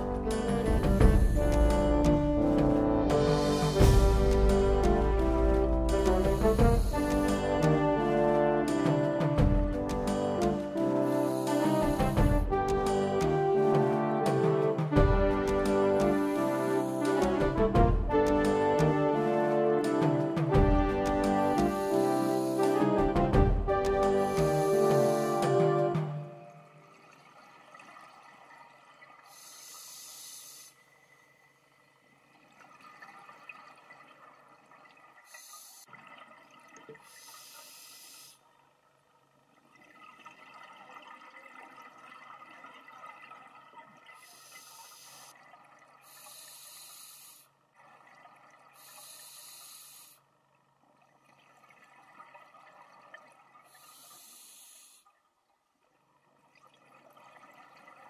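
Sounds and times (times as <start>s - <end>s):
hissing regulator inhalations: 5.8s - 7.8s, 10.8s - 12.3s, 16.0s - 17.3s, 21.3s - 23.0s, 24.3s - 25.9s, 29.3s - 30.8s, 37.0s - 38.4s, 44.2s - 45.3s, 46.0s - 47.5s, 48.8s - 50.2s, 53.7s - 55.1s.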